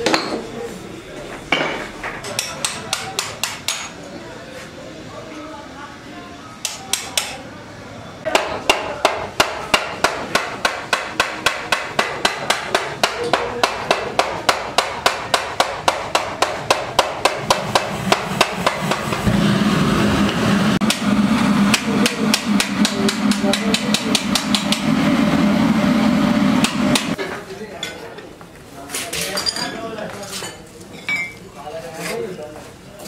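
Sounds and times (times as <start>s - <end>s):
hammering on metal: 2.3s - 3.9s, 8.3s - 19.2s, 21.7s - 25.0s.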